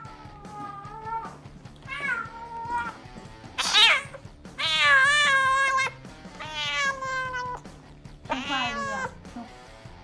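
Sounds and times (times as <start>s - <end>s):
cat yowling: 0.0s - 3.0s, 3.6s - 7.6s, 8.3s - 9.2s.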